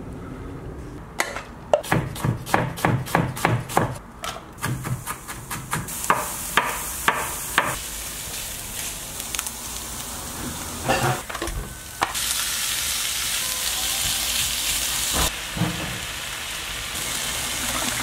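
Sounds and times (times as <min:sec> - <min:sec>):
knife chopping on wooden board: 0:01.8 - 0:04.0
onions sizzling in a pan: 0:04.7 - 0:18.0.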